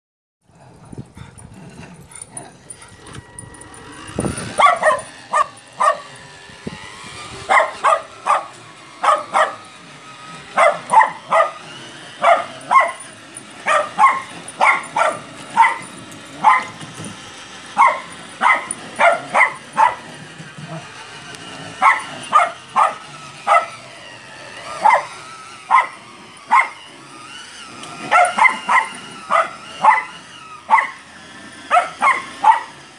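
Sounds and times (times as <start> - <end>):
dog barking: 4.6 - 6.1, 7.5 - 9.6, 10.6 - 11.6, 12.2 - 13.0, 13.6 - 15.8, 16.4 - 16.8, 17.8 - 20.0, 21.8 - 23.8, 24.8 - 25.1, 25.7 - 26.8, 28.1 - 31.0, 31.7 - 32.8.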